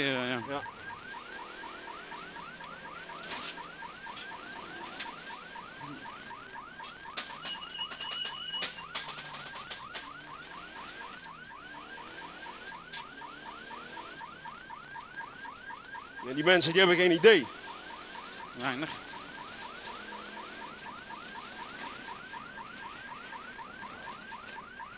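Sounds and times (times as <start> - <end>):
electronic siren yelping: 0.0 - 24.9
car engine hum: 16.9 - 24.9.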